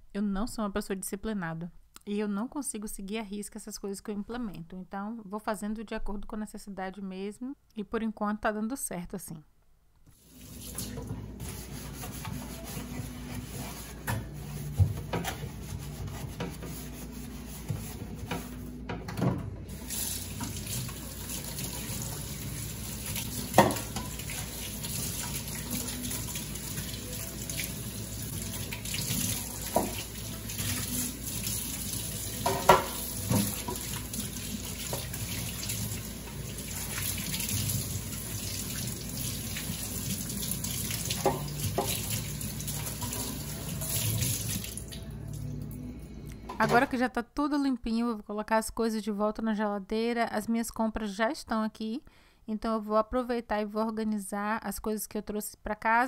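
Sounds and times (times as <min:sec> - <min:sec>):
plastic shelves scrubbed: 0:10.9 - 0:18.9
tap running into metal sink: 0:23.4 - 0:24.5, 0:29.6 - 0:30.8, 0:32.4 - 0:34.0, 0:41.0 - 0:42.2
plastic knocking on sink: 0:32.4 - 0:33.9.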